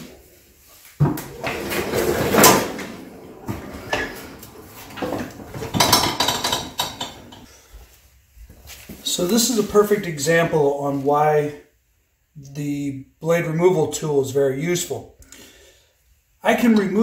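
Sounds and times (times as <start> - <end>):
lawn mower clattering: 1.4 - 7.5.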